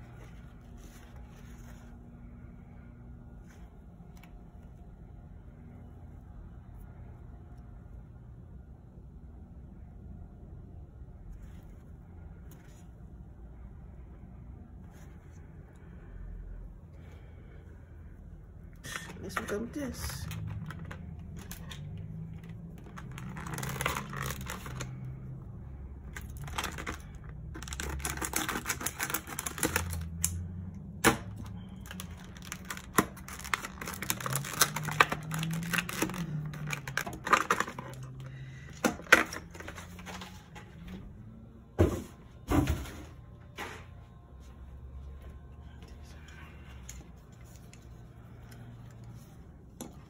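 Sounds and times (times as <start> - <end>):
plastic packaging crackling: 19.3 - 25.2, 26.1 - 30.4, 31.2 - 38.3.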